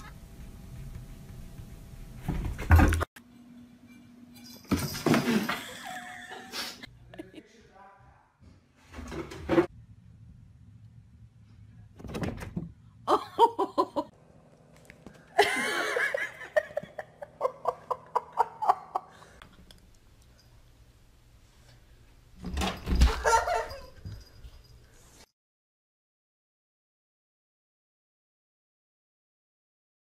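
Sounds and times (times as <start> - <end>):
people laughing: 5.5 - 7.6, 13.1 - 14.1, 15.4 - 19.4.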